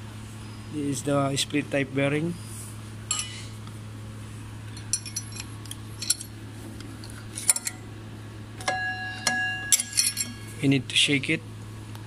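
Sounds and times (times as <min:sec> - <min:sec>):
low hum: 0:00.0 - 0:12.0
metal parts clinking: 0:04.8 - 0:06.3, 0:07.3 - 0:07.8, 0:08.6 - 0:10.6.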